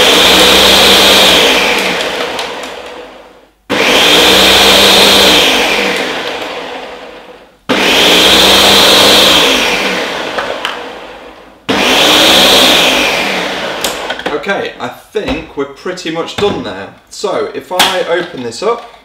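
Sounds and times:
blender crushing ice: 0.0 - 11.1, 11.7 - 14.3.

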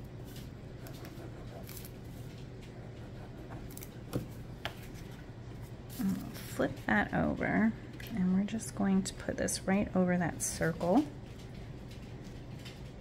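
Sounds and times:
paper cardstock scratching: 0.8 - 2.0.

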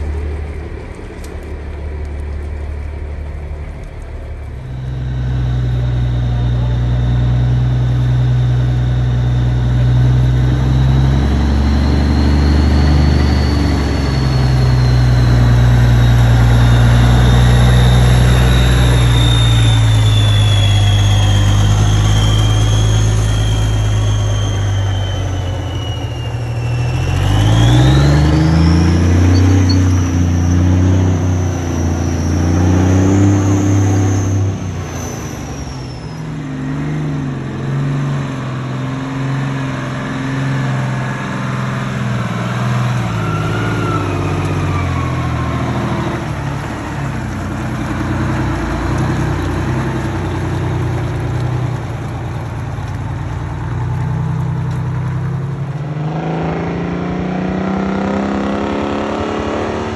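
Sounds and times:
high whine: 0.0 - 38.4
truck engine revving: 0.0 - 59.9.

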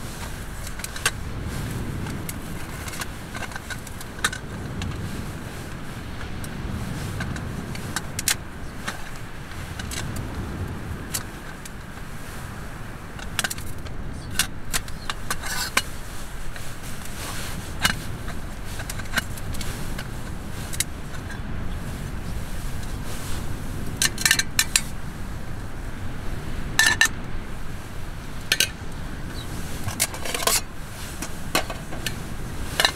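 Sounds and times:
strong wind on tent: 0.0 - 32.9.

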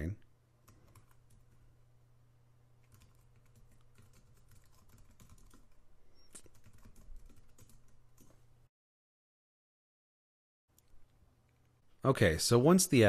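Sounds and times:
steady low hum: 0.0 - 8.7
typing on computer keyboard: 0.6 - 1.6, 2.8 - 8.4.

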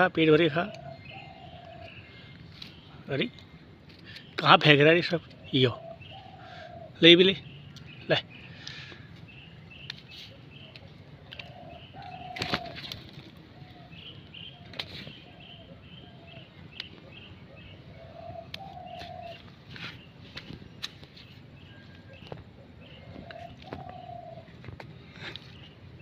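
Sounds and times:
bird chirping: 0.0 - 26.0
dove cooing: 0.7 - 2.0, 5.4 - 7.0, 10.3 - 20.0, 21.7 - 25.7.

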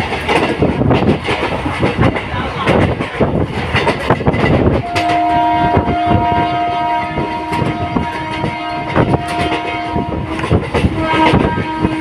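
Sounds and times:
train wheels clacking over rail joints: 0.0 - 12.0
long multi-tone train horn: 4.8 - 12.0.

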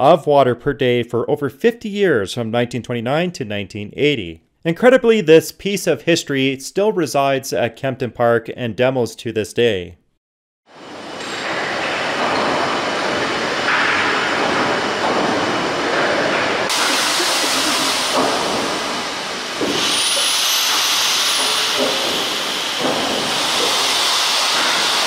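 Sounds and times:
steam hissing: 10.8 - 25.0
steam engine mechanical noise: 10.9 - 25.0
sharp knocks: 17.6 - 25.0.

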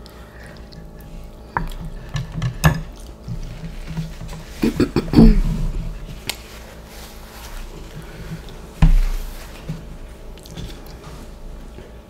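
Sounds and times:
person eating noodles: 0.0 - 6.4, 10.4 - 11.2
utensil sounds: 0.0 - 11.9.

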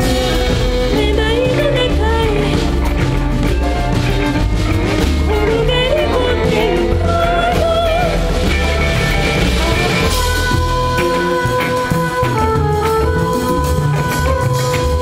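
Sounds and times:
woman singing: 0.0 - 3.2, 5.0 - 15.0
live band with pulsing bass: 0.0 - 15.0.

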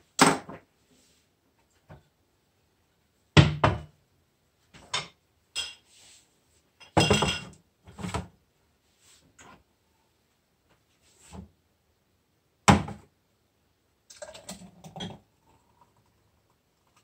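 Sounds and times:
glasses and tray knocking on countertop: 3.4 - 3.9, 6.8 - 7.6.

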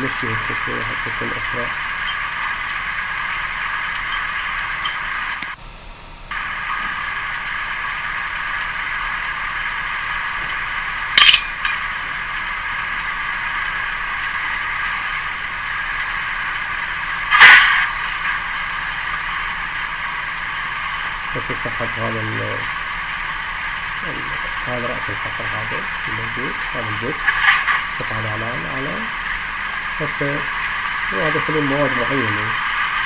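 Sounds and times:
drilling rig mechanical clatter: 0.0 - 5.6, 6.3 - 33.0
sharp metal clanks: 11.2 - 11.9.

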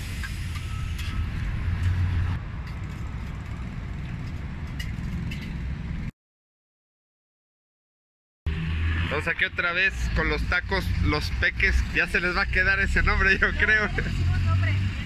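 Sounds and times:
road traffic rumble: 0.0 - 6.1, 8.5 - 15.0.

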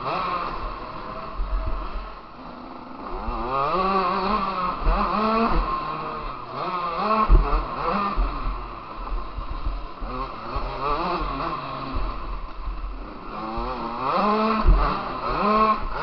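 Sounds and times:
motorbike engine revving: 0.0 - 16.0
heavy low thumps: 7.3 - 10.2.

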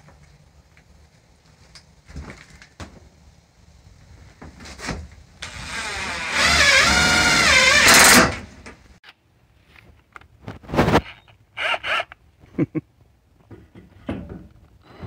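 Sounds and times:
cordless drill running: 5.4 - 8.3.

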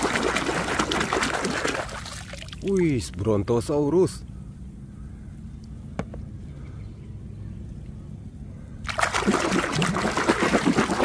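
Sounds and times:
water splashing and sloshing: 0.0 - 2.8, 8.8 - 11.0
low background rumble: 0.0 - 11.0.

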